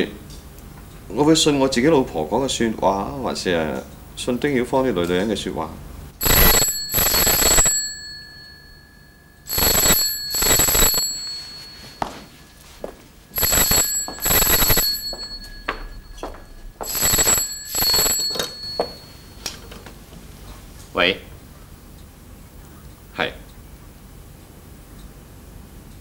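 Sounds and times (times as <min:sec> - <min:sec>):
telephone bell ringing: 0:06.2 - 0:19.7.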